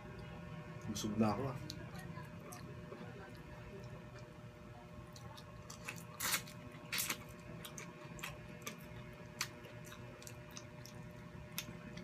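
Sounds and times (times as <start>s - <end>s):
person chewing food: 5.0s - 12.0s.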